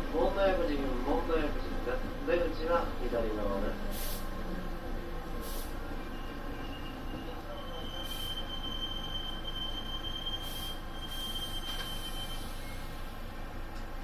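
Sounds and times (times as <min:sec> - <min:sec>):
short hisses: 0:03.9 - 0:04.4, 0:05.4 - 0:05.8
train brakes squealing: 0:06.0 - 0:13.0.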